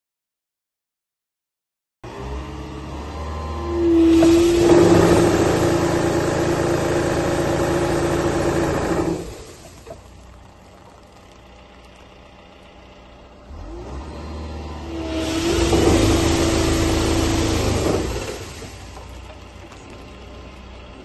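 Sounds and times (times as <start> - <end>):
hydraulic tree shaker hum: 3.9 - 13.6, 14.9 - 21.0
diesel engine idling: 4.0 - 21.0.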